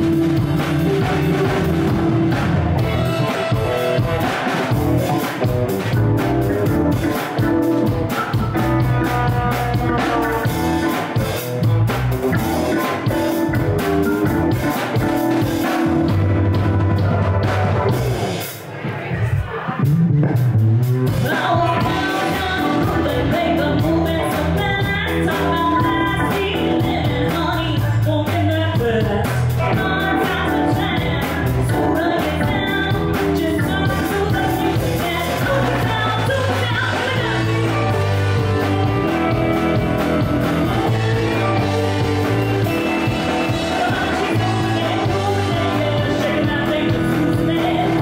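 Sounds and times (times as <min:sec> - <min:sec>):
live funk band playing: 0:00.0 - 0:48.0
woman singing: 0:21.2 - 0:48.0.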